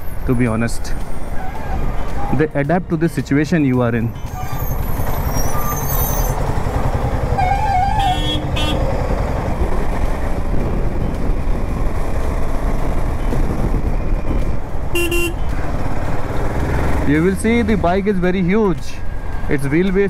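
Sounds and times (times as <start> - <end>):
motorcycle engine accelerating: 4.8 - 13.8
vehicle horns tooting: 7.4 - 8.9, 14.9 - 15.5.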